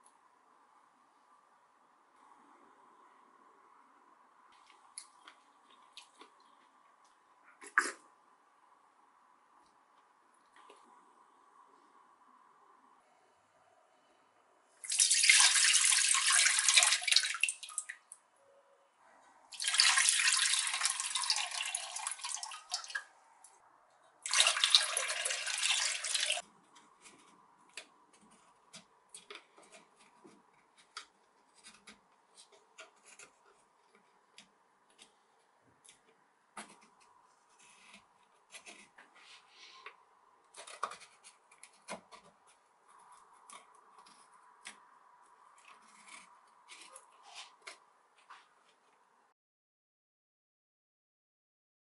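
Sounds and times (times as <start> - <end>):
water pouring into a pot: 14.8 - 18.0, 19.5 - 23.0, 24.2 - 26.4.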